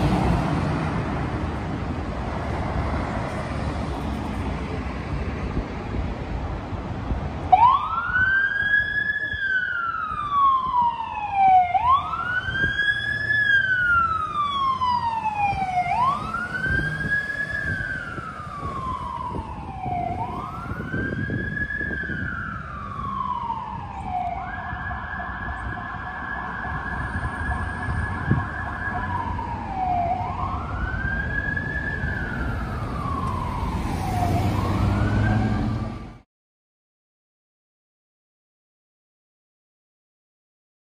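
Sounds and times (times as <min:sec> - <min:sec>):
fire truck siren wailing: 0:07.4 - 0:36.2.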